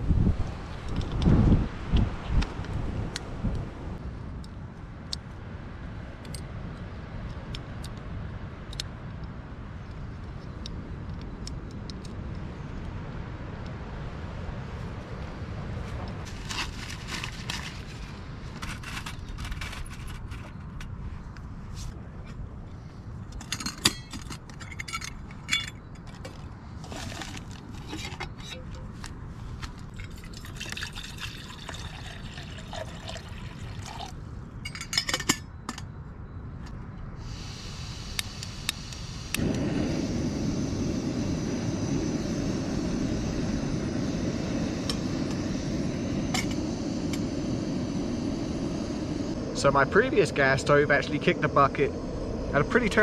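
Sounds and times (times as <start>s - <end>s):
water pouring into a pot: 30.0s - 34.2s
gas burner flame rushing: 37.2s - 53.0s
gas hissing: 37.2s - 53.0s.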